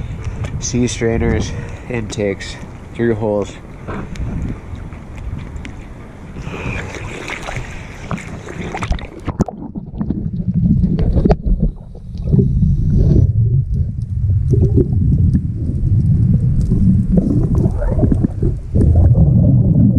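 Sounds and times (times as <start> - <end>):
underwater clicks: 3.8 - 5.9, 6.7 - 19.3
water sloshing and splashing: 3.8 - 19.5
low underwater rumble: 3.8 - 19.9.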